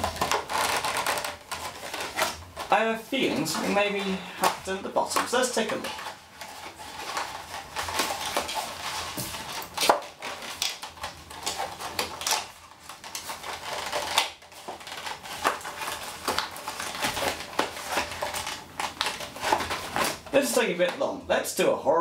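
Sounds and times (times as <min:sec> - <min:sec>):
cardboard box tearing: 0:00.0 - 0:02.7, 0:05.5 - 0:20.3
plastic packaging crinkling: 0:00.0 - 0:21.0.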